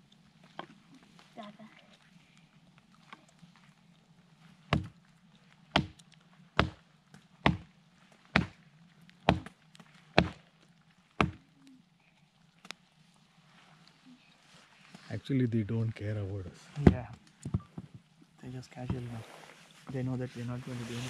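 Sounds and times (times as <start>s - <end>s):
axe chopping wood: 4.7s - 4.9s, 5.7s - 6.0s, 6.6s - 6.8s, 7.4s - 7.6s, 8.3s - 8.6s, 9.2s - 9.6s, 10.2s - 10.4s, 11.2s - 11.4s.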